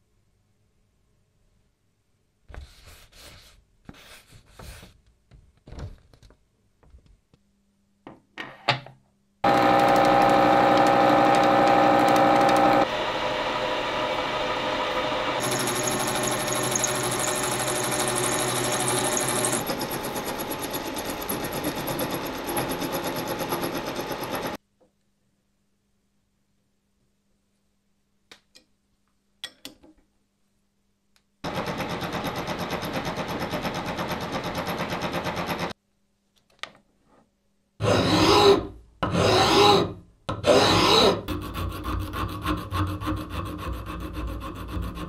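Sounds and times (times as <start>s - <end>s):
milling machine cutting metal: 9.4s - 24.6s.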